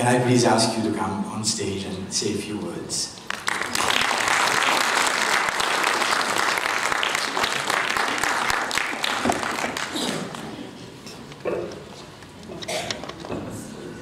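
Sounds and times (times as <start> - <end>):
audience applauding: 3.3 - 10.5.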